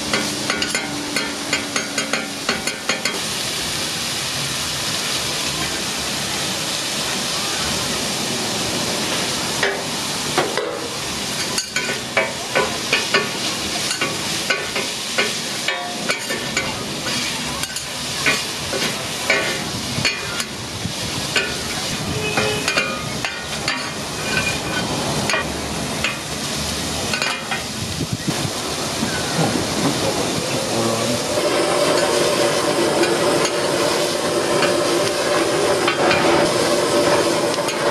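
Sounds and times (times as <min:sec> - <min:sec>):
meat sizzling on a griddle: 0:00.0 - 0:37.9
metal spatula scraping and clacking: 0:22.4 - 0:26.2.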